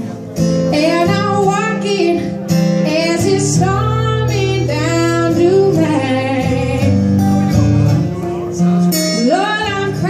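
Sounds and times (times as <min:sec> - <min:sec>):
strummed acoustic guitar: 0:00.0 - 0:10.0
woman singing: 0:00.7 - 0:07.1, 0:09.1 - 0:10.0.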